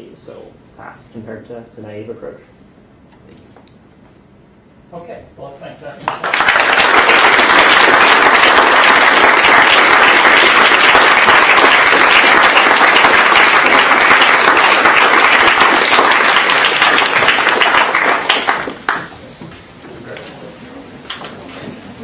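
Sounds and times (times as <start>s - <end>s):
audience applauding: 6.1s - 19.2s.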